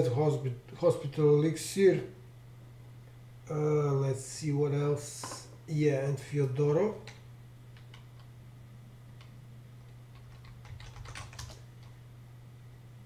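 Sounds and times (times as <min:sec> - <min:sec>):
keyboard keys clicking: 0:10.1 - 0:11.9.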